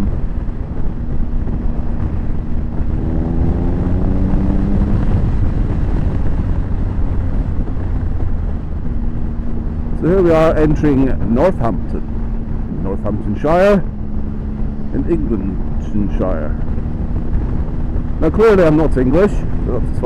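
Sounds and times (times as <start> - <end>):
motorcycle engine running: 0.0 - 20.0
wind rumble on microphone: 0.0 - 20.0.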